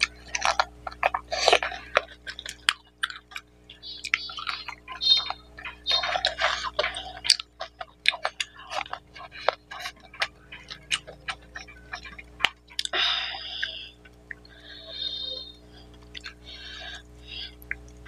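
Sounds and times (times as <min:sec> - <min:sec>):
wet chewing and mouth smacks: 0:00.0 - 0:15.0, 0:15.7 - 0:18.0.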